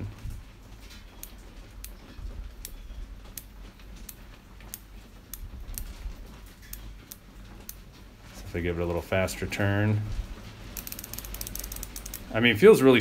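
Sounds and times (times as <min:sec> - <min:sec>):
torque wrench ratchet clicking: 0:10.8 - 0:12.2.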